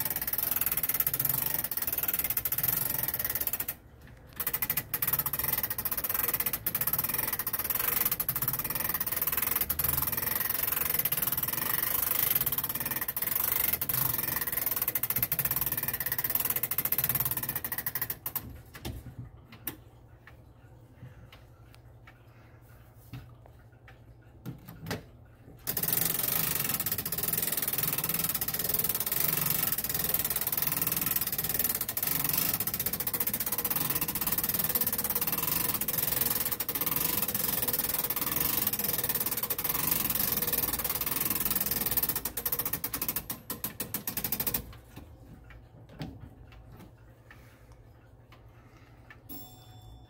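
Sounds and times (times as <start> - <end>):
clock ticking: 0.0 - 18.5, 25.6 - 49.8
clock winding ratchet clatter: 0.0 - 18.5, 25.6 - 44.9.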